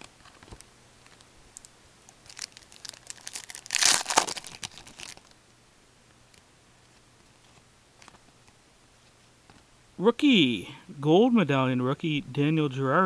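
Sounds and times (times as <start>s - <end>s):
plastic wrapper tearing and crinkling: 2.2s - 5.3s.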